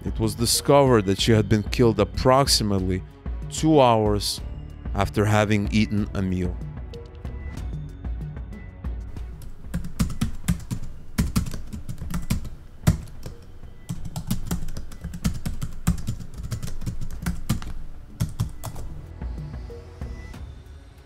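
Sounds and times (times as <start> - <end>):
rapid keystroke clicks: 9.2 - 19.0.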